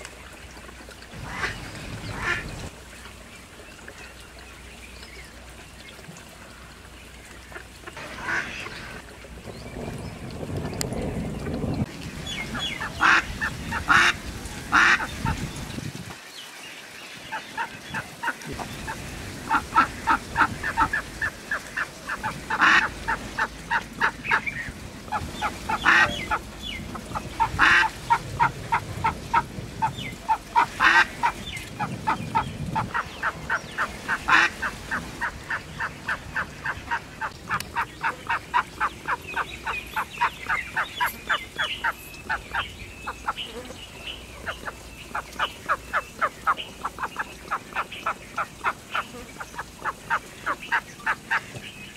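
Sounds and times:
duck quacking: 12.8s - 15.4s, 19.5s - 24.4s, 25.1s - 31.4s, 34.1s - 40.9s.

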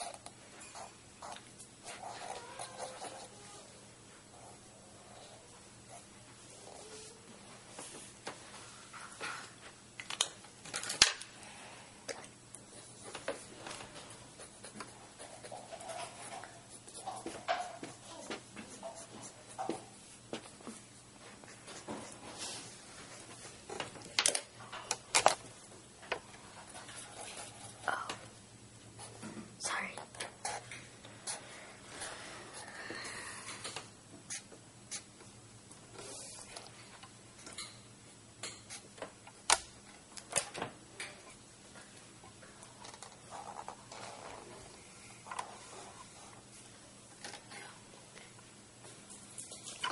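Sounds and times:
marker scratching on paper: 0.8s - 3.4s.

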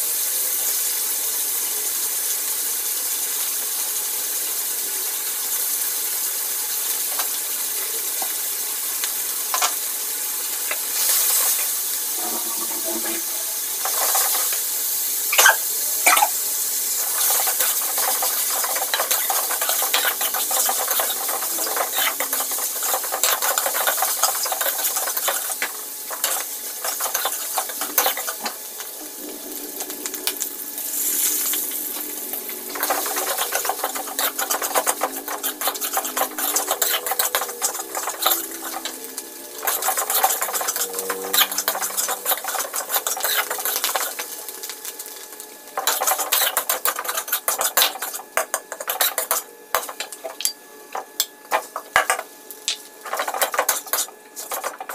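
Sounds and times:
food sizzling in hot oil: 0.0s - 54.9s
metal spatula scraping a wok: 17.2s - 28.6s, 32.7s - 38.9s, 39.6s - 44.2s.

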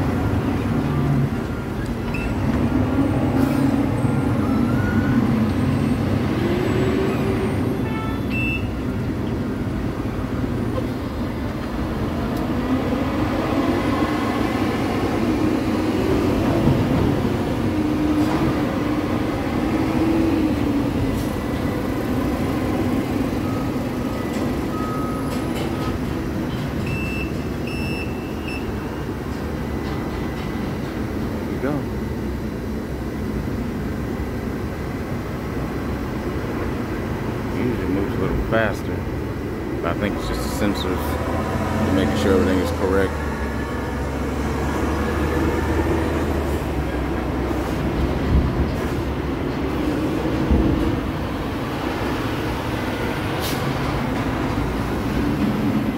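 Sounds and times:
crane machinery drone: 0.0s - 55.9s
short beeps: 2.1s - 2.4s, 7.9s - 8.8s, 23.4s - 25.4s, 26.9s - 28.8s.

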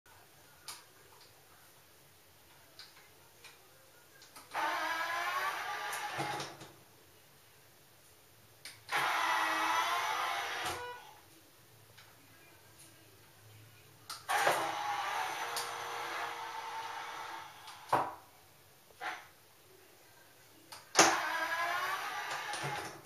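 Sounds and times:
geared motor whining: 4.5s - 6.6s, 8.9s - 11.0s, 14.3s - 17.9s, 21.0s - 23.0s.

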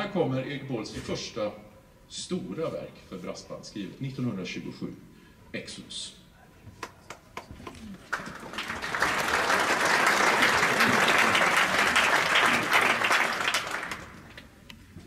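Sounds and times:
audience applauding: 6.8s - 14.4s.

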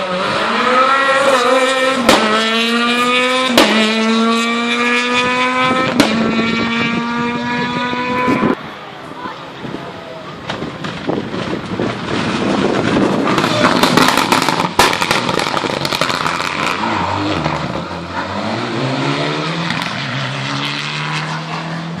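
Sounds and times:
rally car engine at high revs: 0.0s - 8.6s, 10.8s - 22.0s
sharp crackles: 13.4s - 16.7s.

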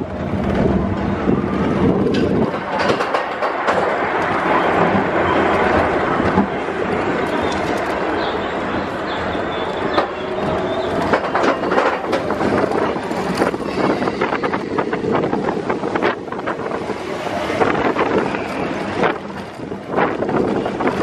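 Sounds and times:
roller coaster wheels clattering: 0.0s - 21.0s
wind buffeting microphone: 0.0s - 21.0s.

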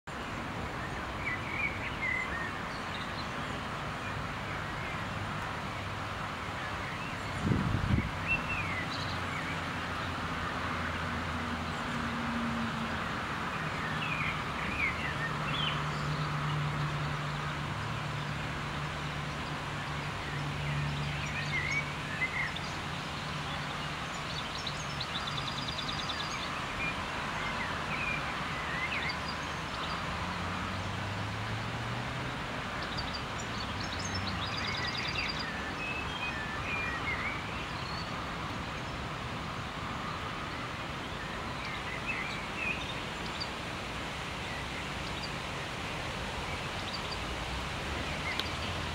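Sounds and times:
distant road traffic hum: 0.1s - 48.9s
small birds chirping: 41.0s - 48.9s.

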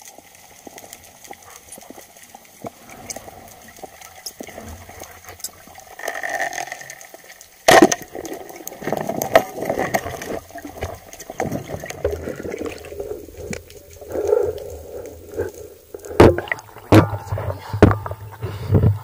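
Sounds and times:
gurgling water: 0.0s - 19.0s
loud sharp crack underwater: 7.6s - 18.4s.

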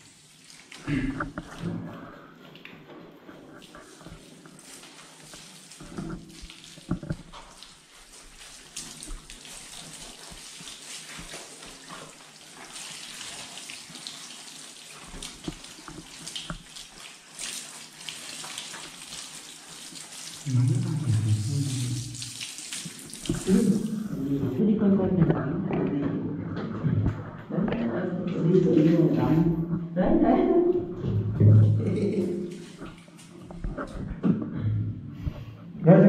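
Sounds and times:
water running and splashing: 0.0s - 25.3s, 28.1s - 34.3s
low voice: 20.4s - 22.1s.

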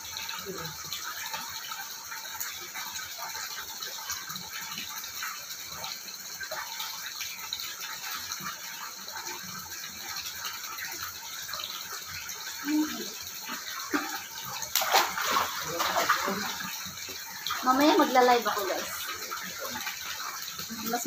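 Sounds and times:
water splashing and lapping: 12.6s - 21.0s.

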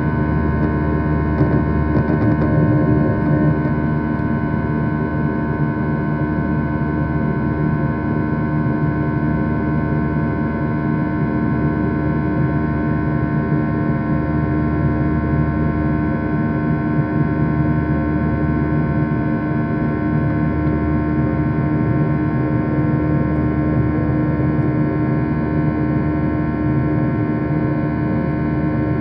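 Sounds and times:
steady hum tones: 0.0s - 5.5s
jet engine drone: 0.0s - 29.0s.

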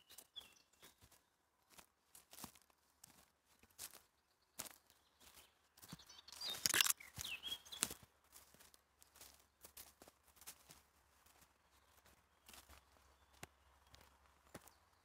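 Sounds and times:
bird chirping: 0.0s - 1.0s, 4.2s - 8.0s
footsteps crunching on dirt path: 0.0s - 15.0s.

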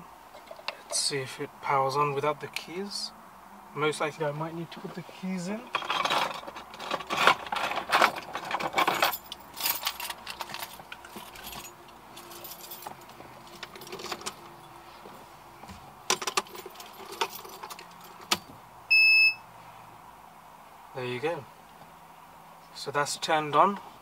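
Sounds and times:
car keys jangling: 6.1s - 14.5s, 16.1s - 18.4s.

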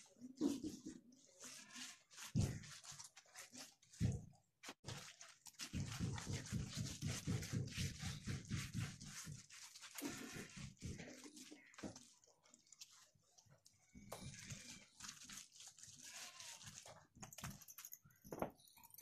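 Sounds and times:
hands slapping wet mud: 2.2s - 12.1s.

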